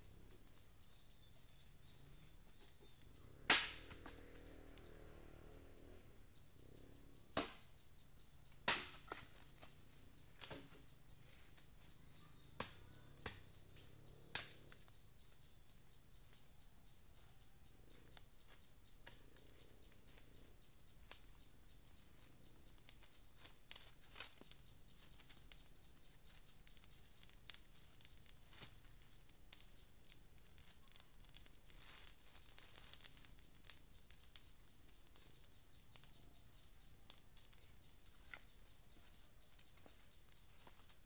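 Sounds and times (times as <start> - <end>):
campfire crackling: 0.0 - 41.0
twigs and leaves rustling: 8.5 - 15.4, 17.2 - 41.0.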